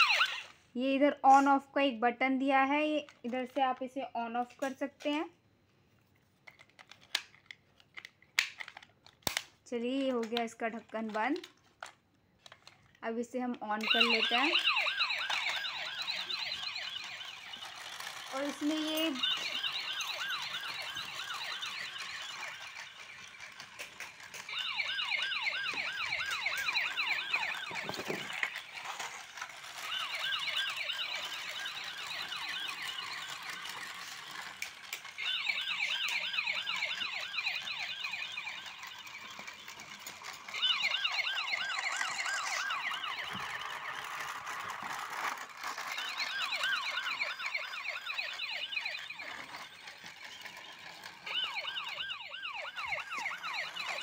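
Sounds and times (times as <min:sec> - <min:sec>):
toy car electronic siren: 0:00.0 - 0:00.6, 0:13.7 - 0:54.0.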